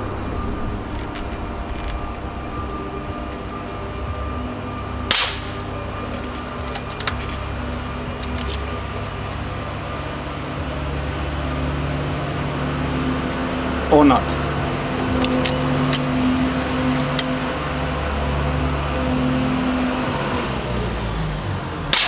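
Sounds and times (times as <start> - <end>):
steady low hum: 0.0 - 20.2
air rifle shot: 5.1 - 5.6.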